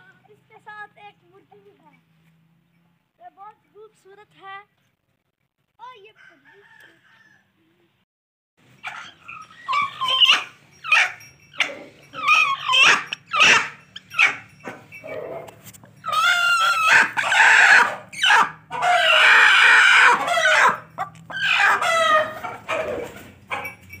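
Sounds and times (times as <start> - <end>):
hen squawking: 8.8 - 14.5, 15.1 - 23.2.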